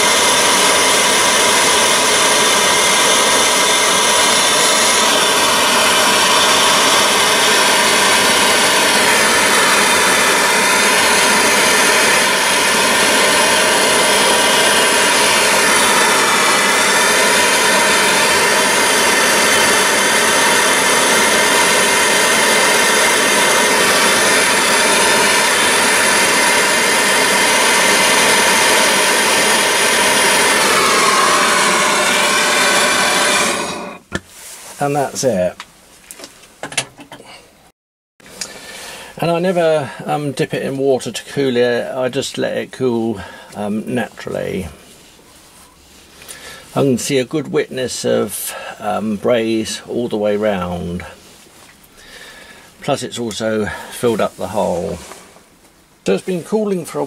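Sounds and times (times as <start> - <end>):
gas torch hissing: 0.0 - 34.2, 51.9 - 55.4.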